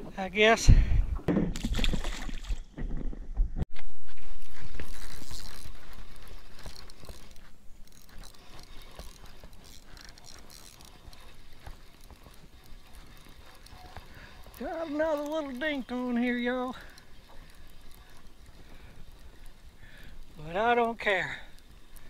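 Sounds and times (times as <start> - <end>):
fishing reel clicking: 4.5 - 22.0.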